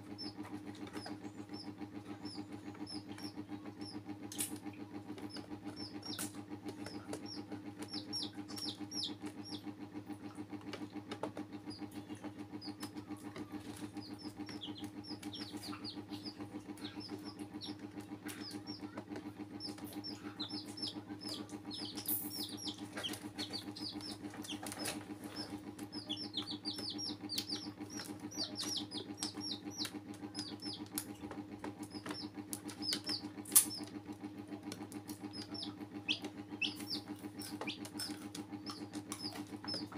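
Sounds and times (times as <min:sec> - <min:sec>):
chicks peeping: 0:00.0 - 0:39.9
sharp clicks: 0:13.7 - 0:34.0.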